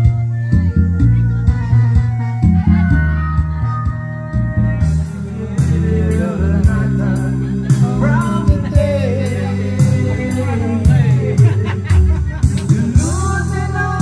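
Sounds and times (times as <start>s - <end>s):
backing music with bass and drums: 0.0s - 14.0s
man singing into a microphone: 5.0s - 14.0s.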